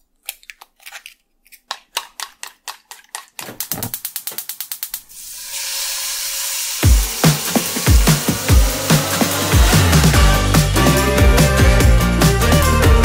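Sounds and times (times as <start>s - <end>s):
rising hiss: 5.1s - 11.6s
music: 6.8s - 13.0s.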